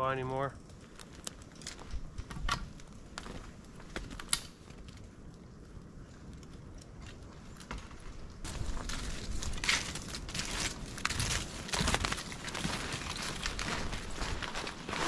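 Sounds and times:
rustling: 7.7 - 15.0.

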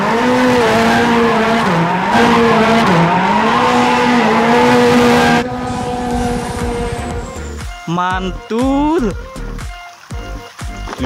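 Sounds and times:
car engine at high revs: 0.0 - 7.6
tyres squealing: 0.0 - 7.7.

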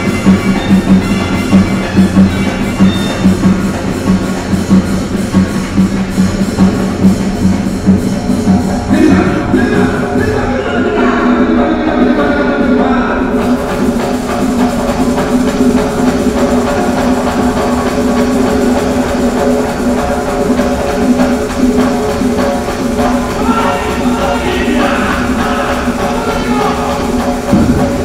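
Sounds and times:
loud music with drums: 0.0 - 28.0.

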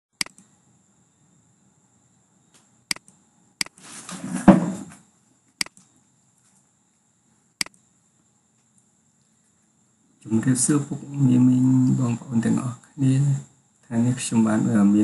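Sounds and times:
computer mouse clicking: 0.2 - 0.5, 2.6 - 3.8, 5.6 - 5.9, 7.6 - 7.9.

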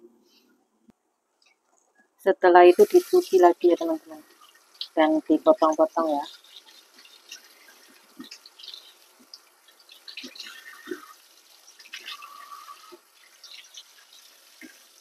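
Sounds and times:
tap water splashing in sink: 5.6 - 15.0.

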